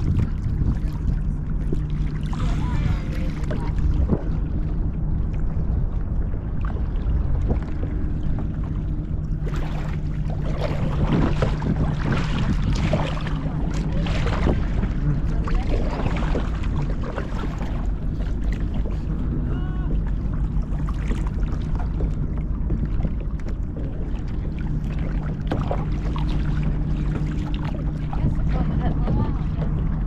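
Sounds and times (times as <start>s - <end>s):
paddle splashing water: 0.0s - 5.6s, 6.2s - 30.0s
wind noise on microphone: 0.0s - 24.4s, 25.1s - 30.0s
low hum: 0.0s - 30.0s.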